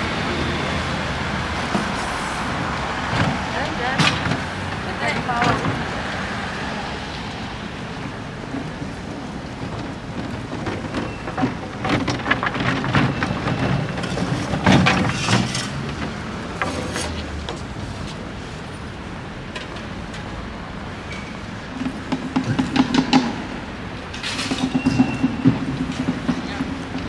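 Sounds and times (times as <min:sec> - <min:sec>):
traffic: 0:00.0 - 0:27.0
dense crackling and clattering: 0:08.4 - 0:18.2.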